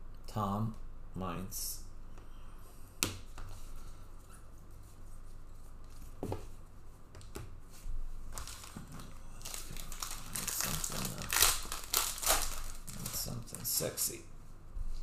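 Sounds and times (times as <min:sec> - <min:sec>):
wrapper crinkling: 0:08.3 - 0:13.8
card pack wrappers tearing: 0:08.4 - 0:13.8.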